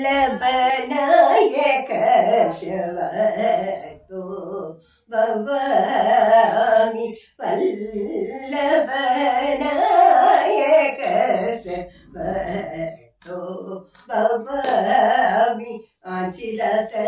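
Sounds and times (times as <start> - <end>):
elderly woman singing unaccompanied: 0.0 - 17.0.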